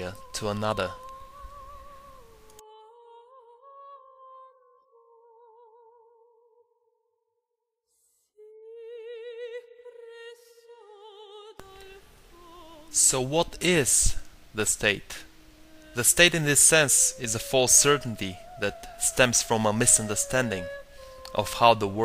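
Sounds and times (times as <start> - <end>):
woman singing wordless long notes: 0.0 - 6.9, 8.0 - 22.0.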